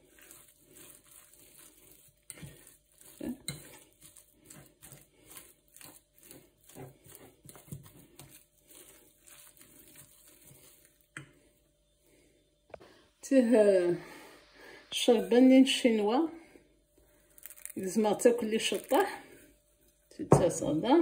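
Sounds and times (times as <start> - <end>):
fork mashing potato in dish: 0.0 - 11.4.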